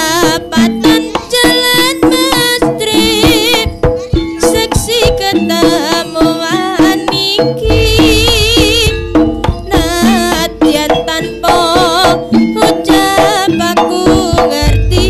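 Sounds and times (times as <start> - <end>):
hand drum strokes: 0.0 - 15.0
wavering lead melody: 7.6 - 15.0.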